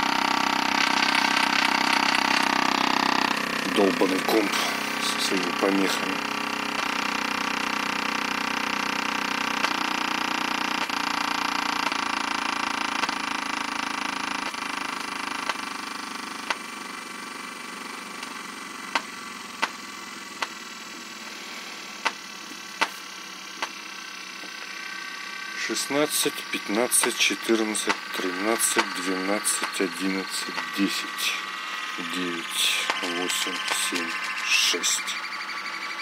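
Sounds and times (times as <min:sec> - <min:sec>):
woofers buzzing hum: 0:00.0 - 0:36.0
sharp clicks: 0:06.6 - 0:07.1, 0:09.6 - 0:09.9, 0:15.4 - 0:15.7, 0:16.4 - 0:16.6, 0:22.0 - 0:22.2, 0:23.6 - 0:23.8, 0:27.0 - 0:31.2, 0:31.8 - 0:34.8.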